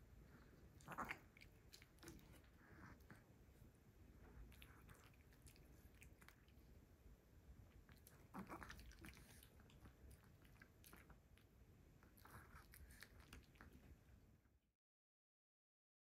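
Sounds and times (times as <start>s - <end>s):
dog chewing: 7.7s - 14.0s.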